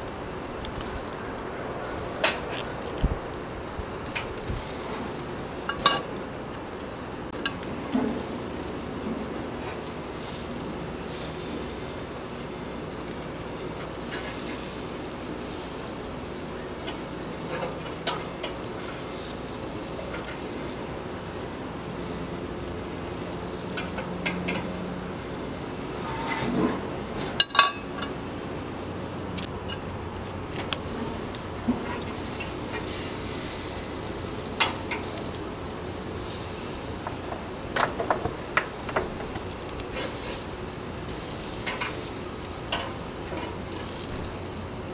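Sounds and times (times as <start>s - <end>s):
chicken sizzling on grill: 0.0s - 44.9s
metal tongs clicking and scraping: 42.7s - 43.5s.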